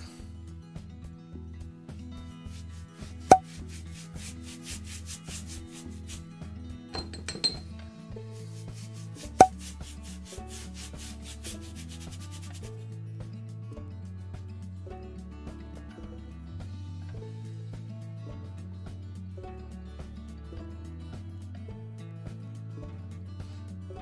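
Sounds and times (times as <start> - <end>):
background music with beat and bass: 0.0 - 6.9, 7.9 - 13.0
sponge rubbing on rough wood: 2.4 - 6.4, 8.3 - 12.7.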